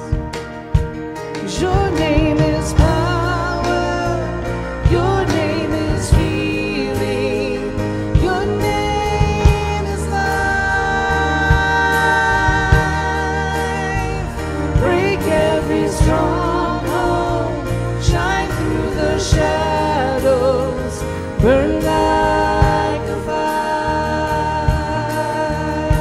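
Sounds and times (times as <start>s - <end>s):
acoustic guitar: 0.0s - 26.0s
drum kit: 0.0s - 26.0s
electric guitar: 0.0s - 26.0s
piano: 0.0s - 26.0s.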